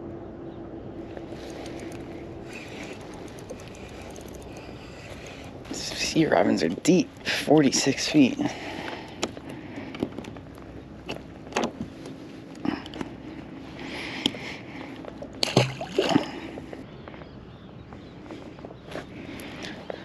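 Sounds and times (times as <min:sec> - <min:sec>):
clicks and knocks of fish unhooking: 0:01.6 - 0:05.5, 0:08.8 - 0:10.4
fish splashing into water: 0:15.4 - 0:16.4.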